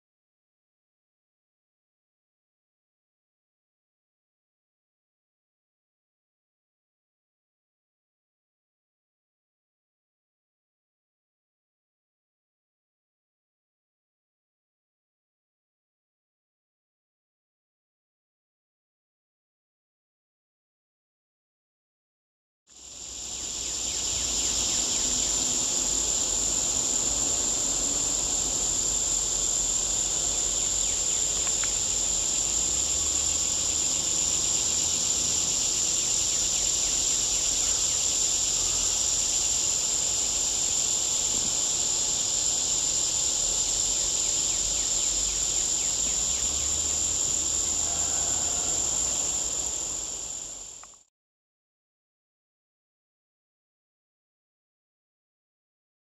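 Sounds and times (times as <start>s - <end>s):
insects chorus: 22.7s - 51.1s.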